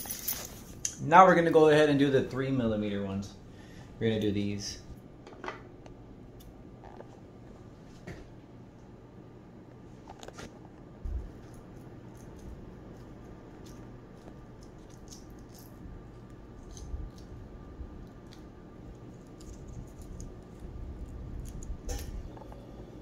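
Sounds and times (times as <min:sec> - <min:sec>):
scissors snipping: 0:16.6 - 0:17.3, 0:19.2 - 0:22.2.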